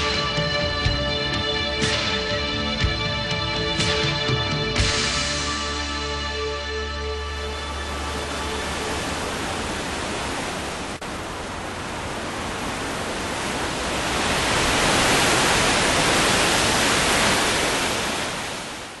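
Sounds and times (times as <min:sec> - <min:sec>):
steady rushing noise: 0:07.2 - 0:19.0.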